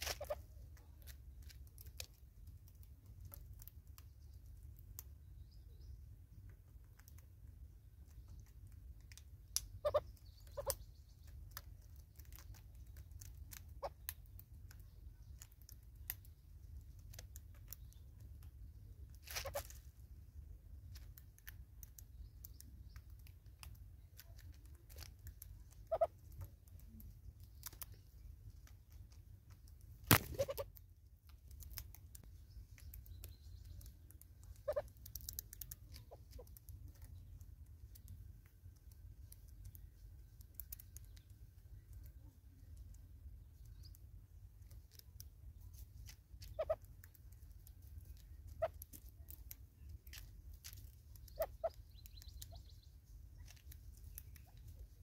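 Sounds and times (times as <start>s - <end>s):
birds pecking on wood: 0.0s - 55.0s
low steady rumble: 0.0s - 55.0s.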